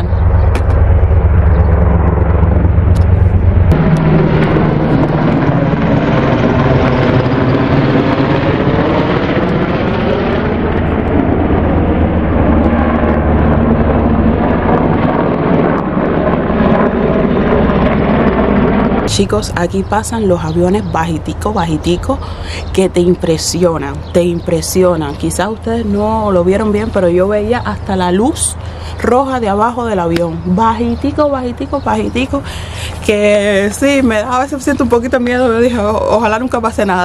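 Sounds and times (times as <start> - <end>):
helicopter flying overhead: 0.0 - 37.0.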